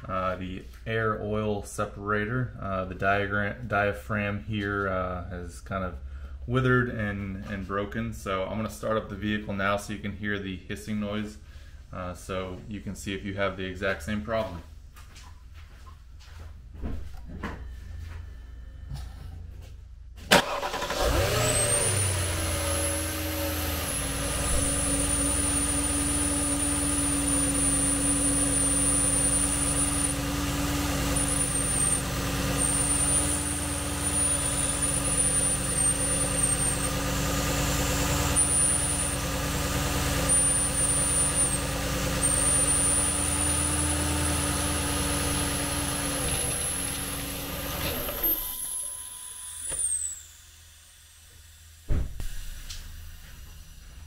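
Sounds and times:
car engine idling: 20.3 - 48.9
hissing sucking vacuum leak: 38.1 - 51.5.

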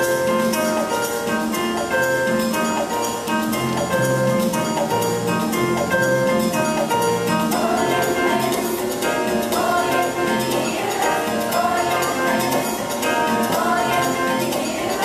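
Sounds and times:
girls' choir singing: 7.4 - 15.0.

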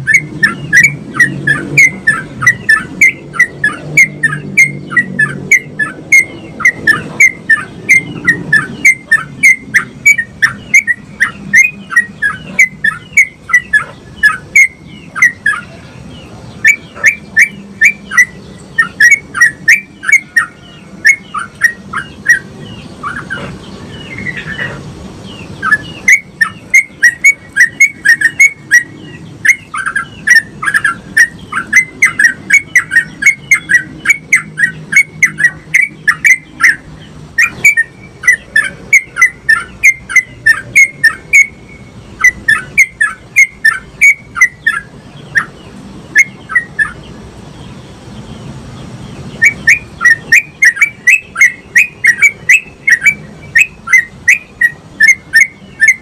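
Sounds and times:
bird chirping: 0.0 - 56.0.

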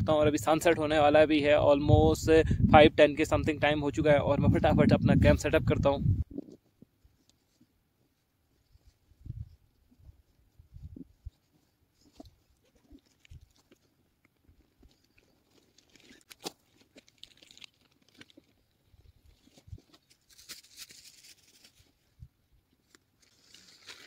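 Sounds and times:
rustling and handling noises: 6.2 - 24.0
clicks and crinkles: 11.4 - 22.1, 22.7 - 24.0.

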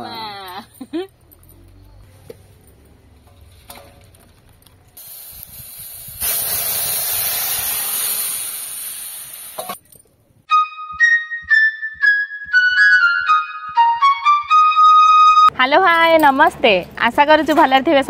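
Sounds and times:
food sizzling in hot oil: 5.0 - 9.8
loud hiss of frying: 5.0 - 9.8.

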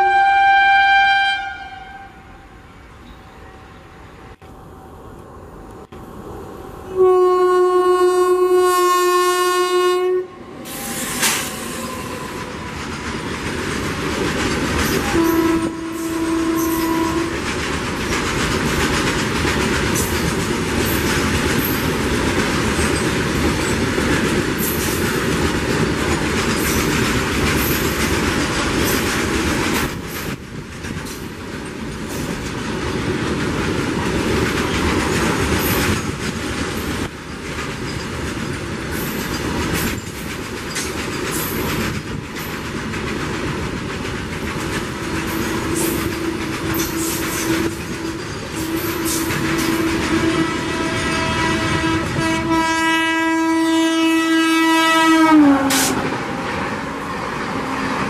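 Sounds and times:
train horn blast: 0.0 - 2.6, 6.9 - 12.8, 14.9 - 17.4, 45.2 - 56.4
wheels clacking over rail joints: 11.0 - 52.5
freight wagons rumbling: 11.2 - 52.2.

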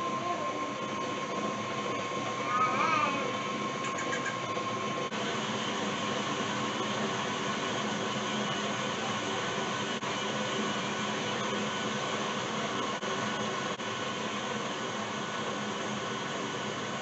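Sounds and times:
small electric motor whirring: 0.0 - 13.0.

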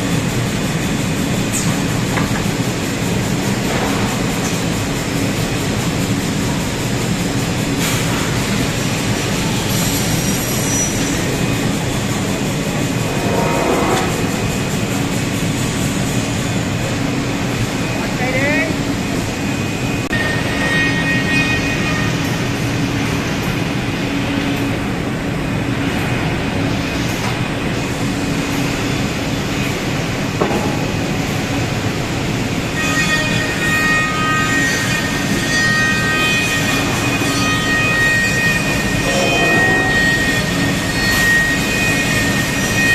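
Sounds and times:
high-pitched whining tones: 32.9 - 42.9.

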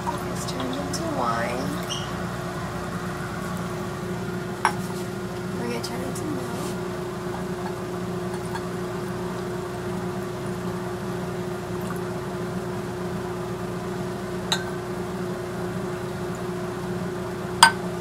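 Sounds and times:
steady low hum: 0.0 - 18.0
glass clink: 14.5 - 14.8, 17.6 - 17.8.

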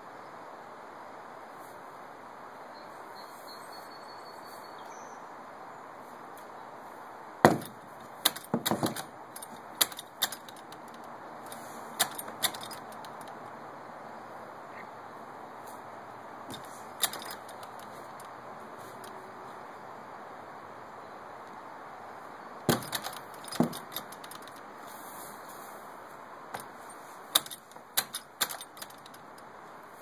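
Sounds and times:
background hiss: 0.0 - 30.0
horse knocking wooden door: 7.5 - 10.5, 22.7 - 24.2
metal clinks: 7.5 - 13.5, 16.5 - 18.4, 22.6 - 24.6, 26.6 - 29.5.

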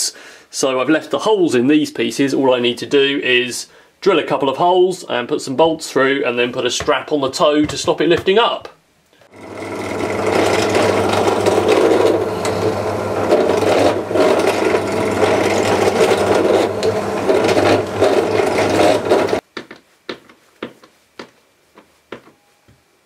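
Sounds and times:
drill bit grinding through sole: 9.3 - 19.4
drill motor hum: 9.3 - 19.4.

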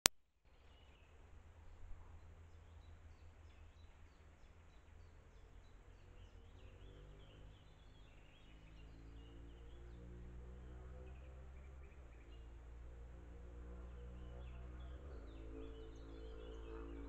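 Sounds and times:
bird chirping: 0.6 - 17.0
low steady drone: 7.6 - 17.0.

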